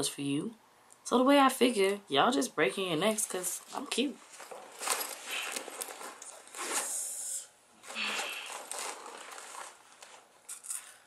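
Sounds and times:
fabric rustling: 3.6 - 7.0, 7.8 - 11.0.

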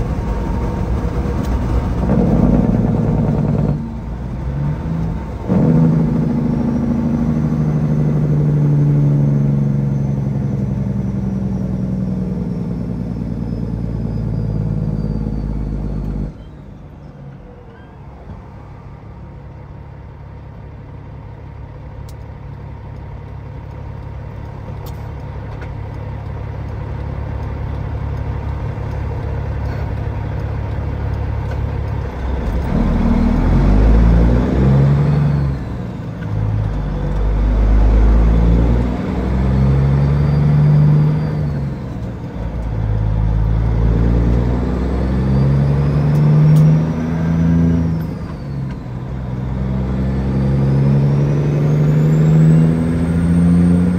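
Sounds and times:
diesel truck engine shifting gears: 0.0 - 53.9.

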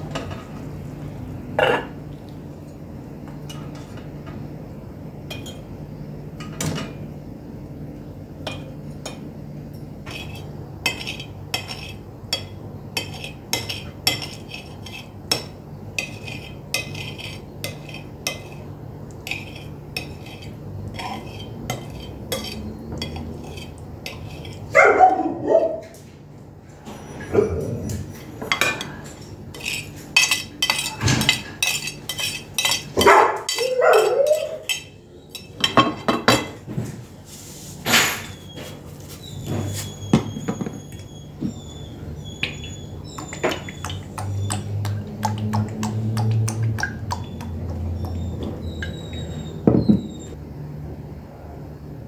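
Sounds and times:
cutlery and dishes clinking: 28.4 - 36.6.

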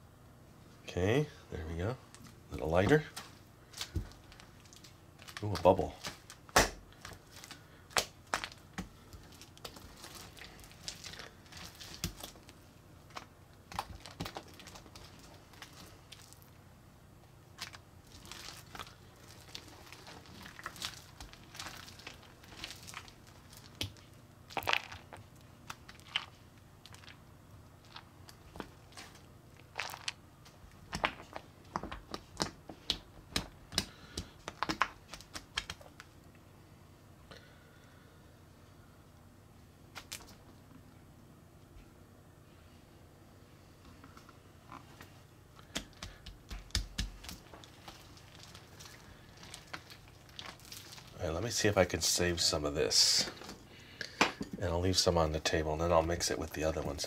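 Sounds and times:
sticky slime crackles and pops: 3.7 - 16.5, 17.5 - 27.2, 27.8 - 36.1, 45.6 - 51.2.

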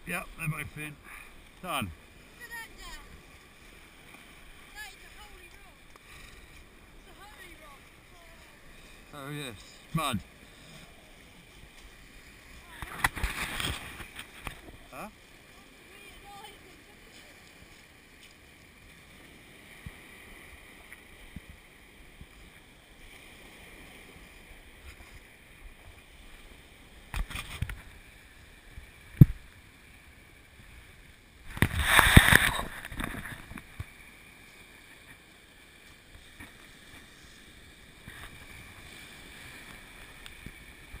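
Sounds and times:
waves washing onto shingle: 0.0 - 21.5, 31.4 - 41.0.

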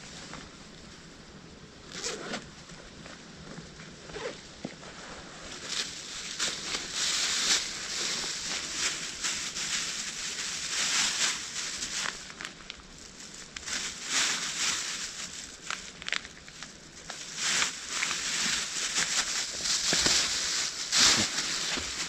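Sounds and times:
dry leaves rustling: 4.9 - 22.0.

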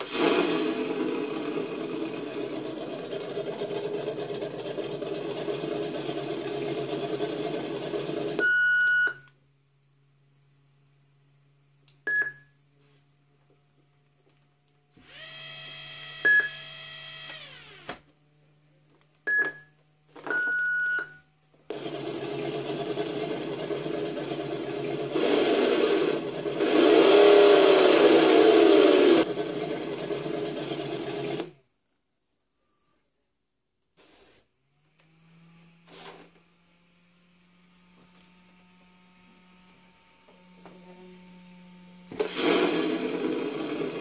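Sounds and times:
simulated motor revving: 0.0 - 8.4, 15.0 - 17.9, 21.7 - 31.5, 34.7 - 44.0
short electronic beeps: 8.4 - 9.3, 12.1 - 12.5, 16.3 - 16.6, 19.3 - 19.7, 20.3 - 21.2.

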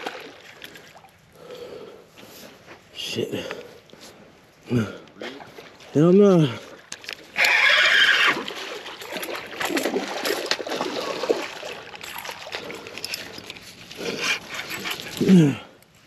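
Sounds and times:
fish splashing in water: 0.0 - 1.1, 7.3 - 13.0
rod and reel handled: 11.9 - 16.0.

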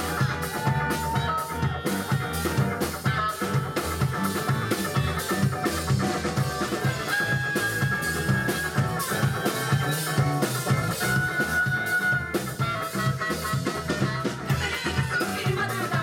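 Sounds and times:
drum kit: 0.0 - 16.0
electric guitar: 0.0 - 16.0
clarinet long notes: 6.7 - 14.7.

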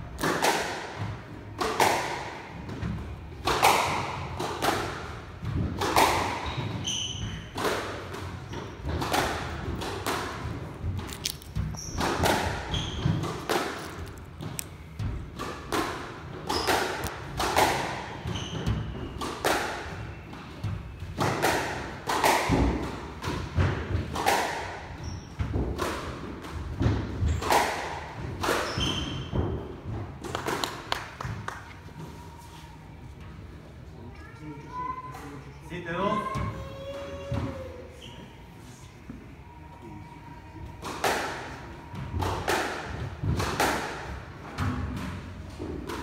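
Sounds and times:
squash ball hitting rackets and walls: 0.0 - 31.6, 40.6 - 46.0
shoes squeaking on wooden floor: 11.0 - 15.0.

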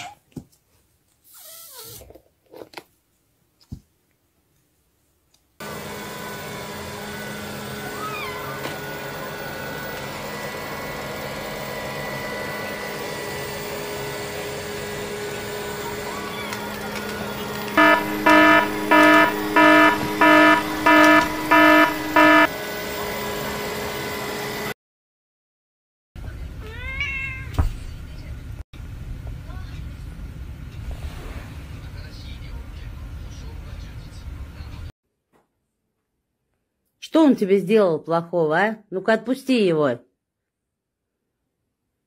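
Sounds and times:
robot vacuum cleaner humming: 5.6 - 24.7
loud electronic beeps: 17.8 - 22.5.

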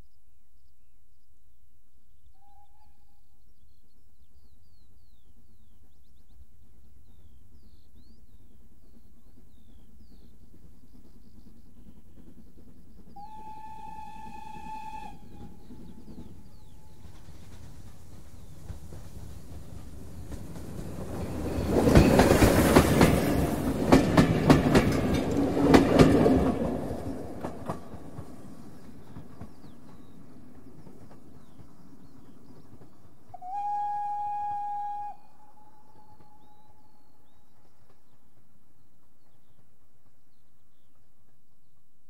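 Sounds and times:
train wheels clicking over rail joints: 7.0 - 33.6
steam whistle blast: 13.2 - 15.7, 33.4 - 36.4.

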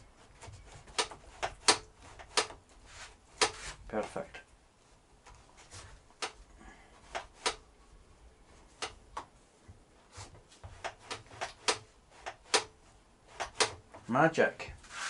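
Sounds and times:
sharp clicks and light knocks: 0.4 - 2.7, 6.2 - 6.5, 8.8 - 9.8, 13.4 - 14.1.

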